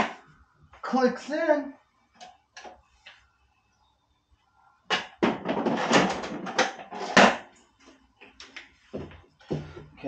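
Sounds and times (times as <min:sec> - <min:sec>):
plastic parts rattling and knocking: 0:04.9 - 0:07.5.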